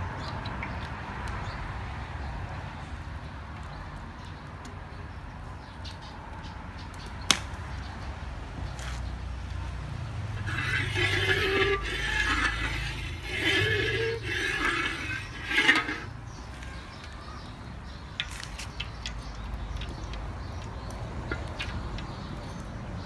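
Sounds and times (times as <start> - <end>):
metal spatula scraping wok: 10.3 - 16.8.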